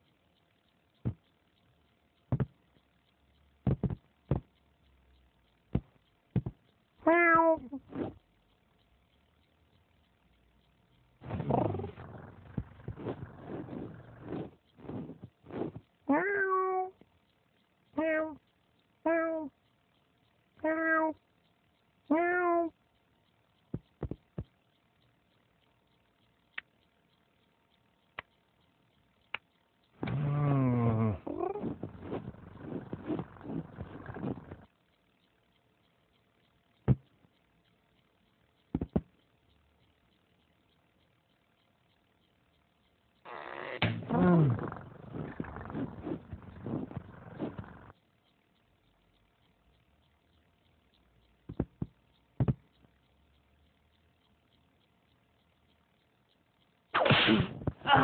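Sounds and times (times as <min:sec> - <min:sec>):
faint ticks: 0:00.0 - 0:57.0
soft thumps: 0:02.3 - 0:02.6, 0:03.7 - 0:04.5
cartoon cat meow: 0:07.0 - 0:07.8, 0:16.1 - 0:17.0, 0:18.0 - 0:18.4, 0:19.1 - 0:19.5, 0:20.6 - 0:21.2, 0:22.1 - 0:22.7
cat meowing: 0:07.1 - 0:07.7.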